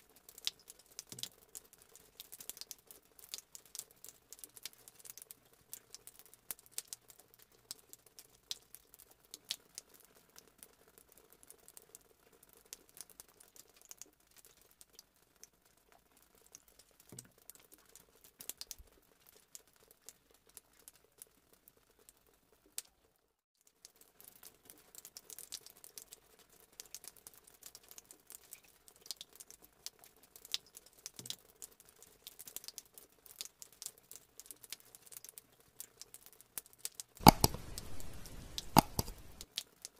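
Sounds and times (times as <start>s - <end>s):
low steady hum: 37.2s - 39.4s
handling clicks and crackles: 37.2s - 39.6s.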